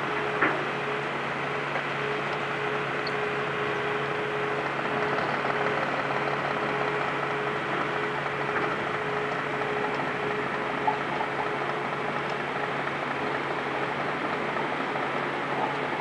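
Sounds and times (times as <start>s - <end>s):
farm machine engine running: 0.0s - 16.0s.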